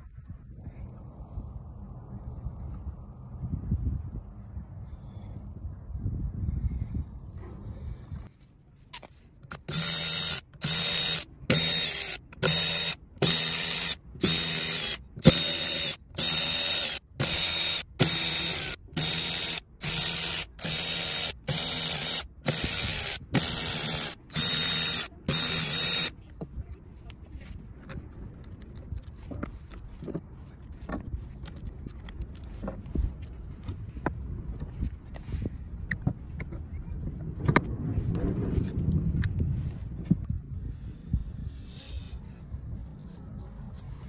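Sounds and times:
electric ratchet whirring: 0:09.0 - 0:26.1.

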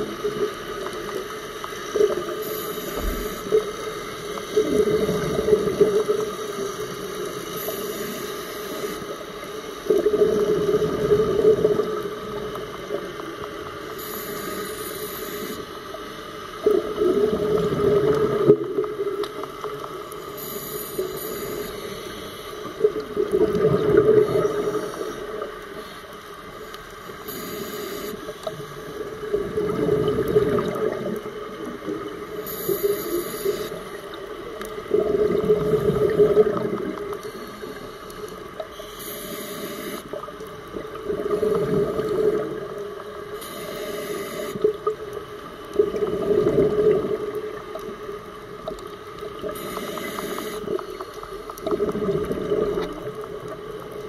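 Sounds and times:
exhaled bubbles rushing: 0:16.6 - 0:19.2, 0:22.8 - 0:24.8, 0:28.9 - 0:32.2, 0:34.8 - 0:37.2, 0:40.7 - 0:42.9, 0:45.7 - 0:47.6, 0:51.6 - 0:53.7
regulator inhalation hiss: 0:27.2 - 0:28.2, 0:38.8 - 0:40.1, 0:43.4 - 0:44.6, 0:49.6 - 0:50.7.

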